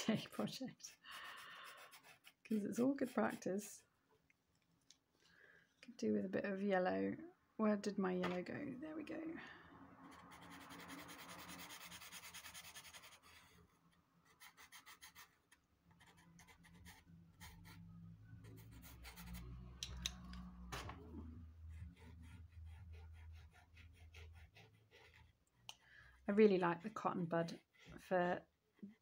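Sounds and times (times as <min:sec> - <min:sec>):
pencil scratching on paper: 0:00.1 - 0:03.8, 0:10.0 - 0:19.8, 0:20.8 - 0:25.7, 0:26.3 - 0:29.0.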